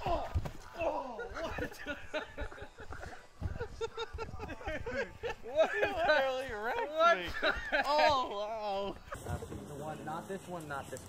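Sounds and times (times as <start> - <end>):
man laughing: 0.8 - 9.4.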